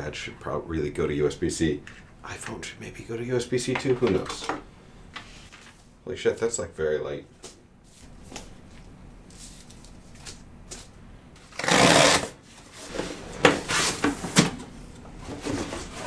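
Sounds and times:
cardboard scraping rustle: 11.6s - 14.6s, 15.2s - 16.0s.

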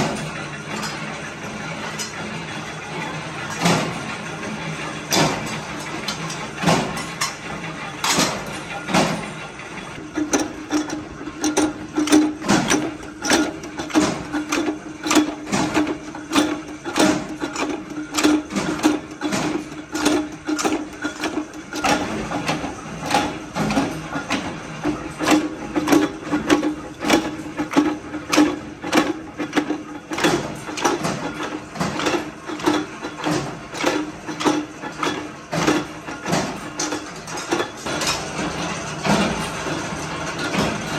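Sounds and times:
machine hum: 0.0s - 40.9s
steel shells clanking: 10.0s - 21.9s
power press metal strikes: 10.0s - 24.6s.

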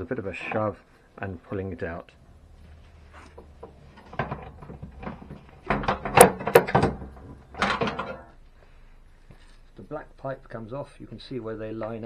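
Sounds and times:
plastic parts knocking and scraping: 3.1s - 8.4s.

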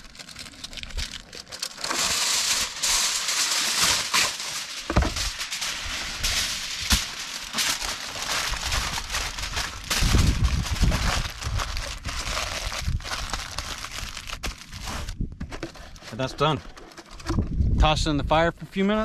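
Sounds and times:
aluminium foil crinkling: 0.0s - 17.2s.

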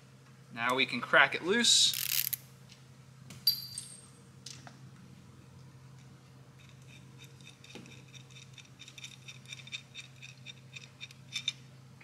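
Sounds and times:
low shop hum: 0.0s - 12.0s.

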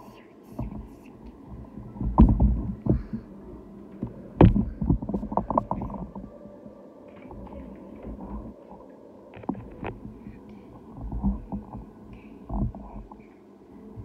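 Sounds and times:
microphone handling thumps: 0.5s - 3.3s, 4.0s - 6.3s.

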